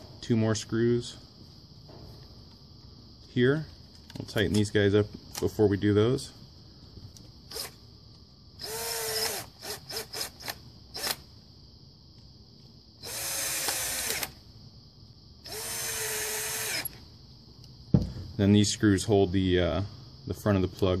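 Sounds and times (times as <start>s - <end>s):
cordless drill motor spinning: 8.6s - 11.2s, 13.0s - 14.4s, 15.4s - 17.0s.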